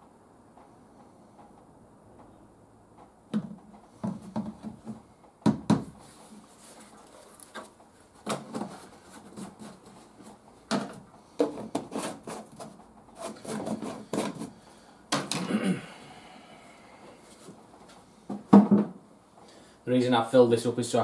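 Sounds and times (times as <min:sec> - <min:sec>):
plastic bottle knocks and clatters: 0:03.3 - 0:06.0, 0:10.7 - 0:11.9, 0:18.3 - 0:19.0.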